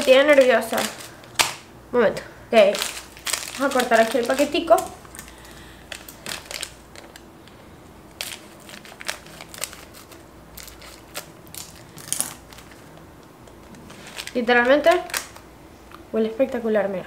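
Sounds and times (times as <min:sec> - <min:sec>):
plastic packet crinkling: 0:00.0 - 0:01.7, 0:02.6 - 0:15.5.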